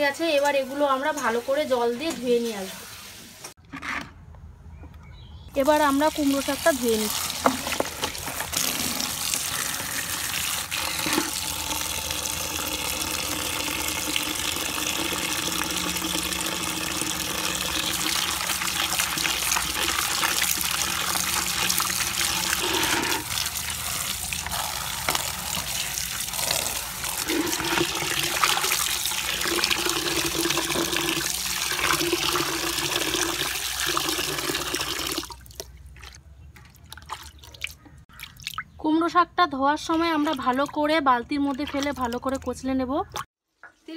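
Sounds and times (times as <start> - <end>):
tap water splashing on plastic: 6.6 - 9.5.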